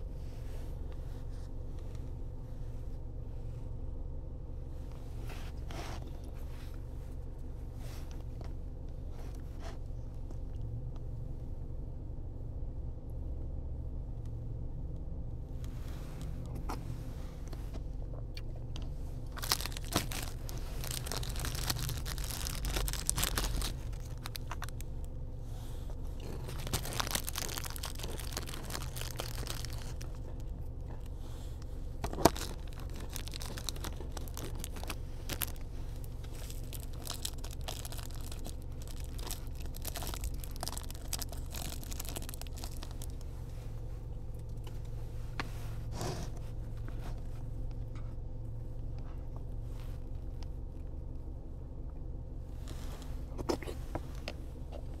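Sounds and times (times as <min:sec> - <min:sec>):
low hum inside a car: 0:00.0 - 0:55.0
plastic wrappers crinkling and tearing: 0:19.3 - 0:24.9, 0:26.2 - 0:30.5, 0:32.0 - 0:43.3.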